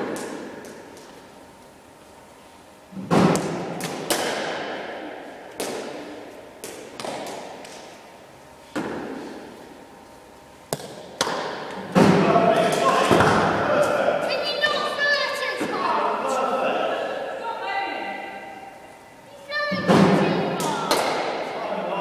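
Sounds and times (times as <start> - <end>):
balls striking bats echoing: 0.0 - 1.3, 2.9 - 9.8, 10.6 - 15.0, 19.7 - 21.6.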